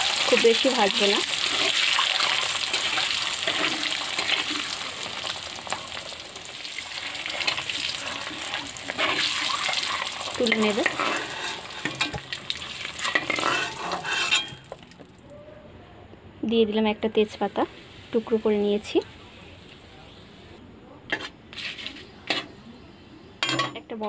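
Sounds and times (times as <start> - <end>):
metal spatula scraping a pan: 0.0 - 4.8, 6.9 - 14.7
eggs sizzling in oil: 0.0 - 15.1, 17.2 - 19.1.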